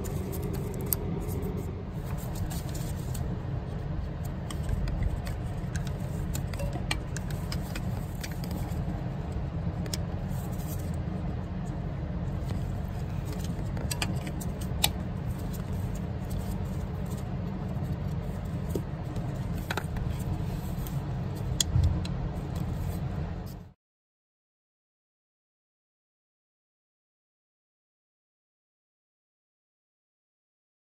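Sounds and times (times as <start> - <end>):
steady low rumble: 0.0 - 23.8.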